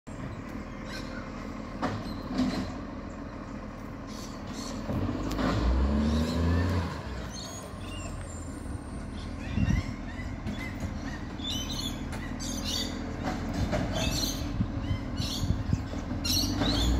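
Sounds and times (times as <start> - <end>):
birds chirping: 0.1 - 16.9
garbage truck diesel engine: 0.1 - 16.9.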